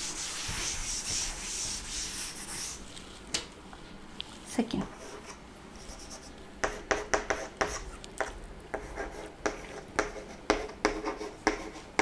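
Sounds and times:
chalk scratching on blackboard: 0:00.0 - 0:02.8, 0:04.9 - 0:08.0, 0:08.7 - 0:12.0.

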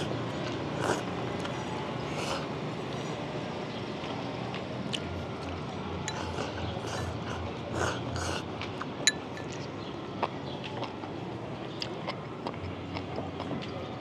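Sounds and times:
utensils clinking on a bowl: 0:09.0 - 0:09.6.

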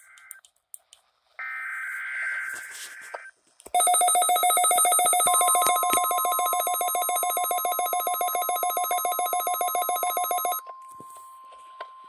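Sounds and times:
steady warning alarm tone: 0:03.8 - 0:11.3.

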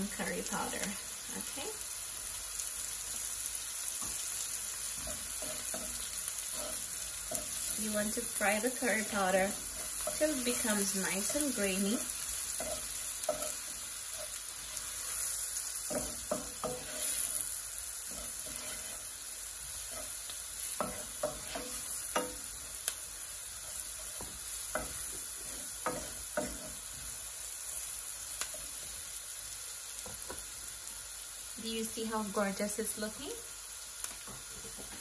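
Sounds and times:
onions sizzling in hot oil: 0:00.0 - 0:35.0
wooden spoon scraping a pot: 0:05.0 - 0:15.3, 0:15.9 - 0:22.3.

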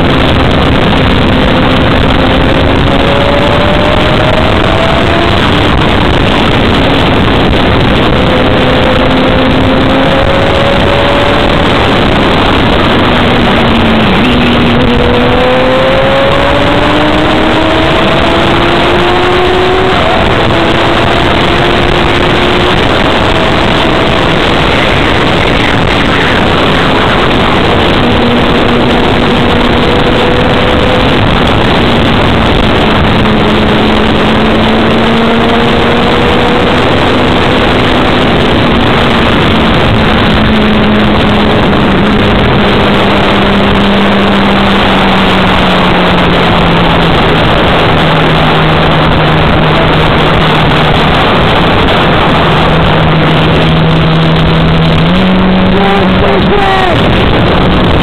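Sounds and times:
loud wind on microphone: 0:00.0 - 0:58.0
motorcycle engine: 0:00.0 - 0:58.0.

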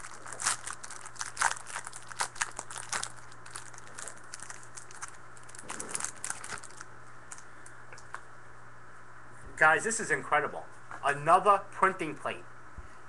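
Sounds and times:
plastic wrapper crinkling and tearing: 0:00.0 - 0:07.4.

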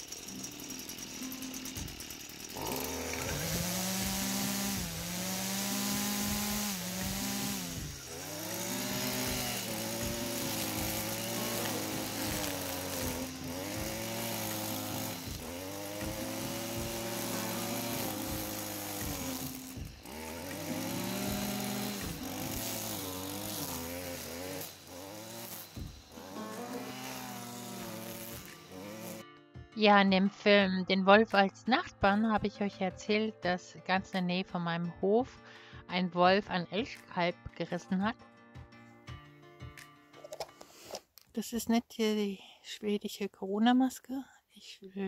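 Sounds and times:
string trimmer cutting grass: 0:00.0 - 0:29.3.

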